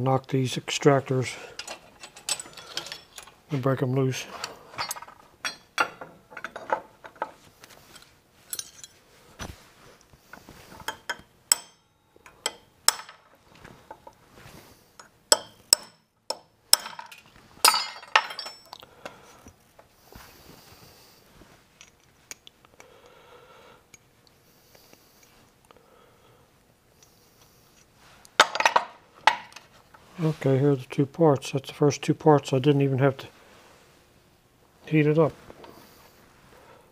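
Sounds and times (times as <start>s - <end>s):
metal rod tapping metal pins: 10.8s - 13.2s, 15.0s - 18.7s.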